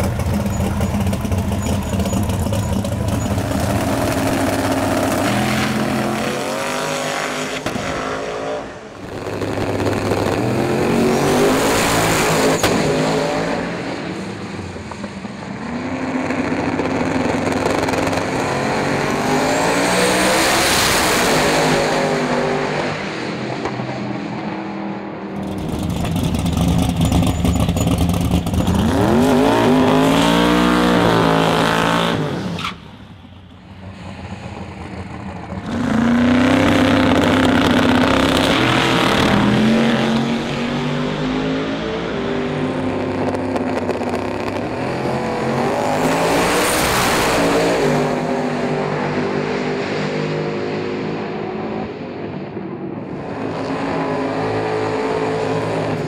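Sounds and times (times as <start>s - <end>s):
drag car engine revving: 0.0s - 14.4s, 25.4s - 32.9s, 33.8s - 49.8s.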